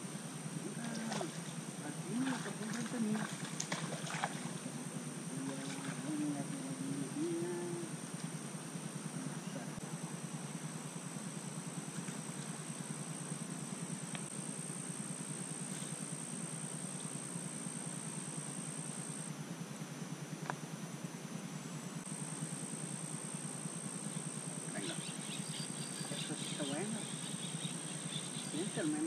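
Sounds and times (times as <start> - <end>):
insects trilling: 0.0 - 29.0
faint ticks: 14.1 - 14.3.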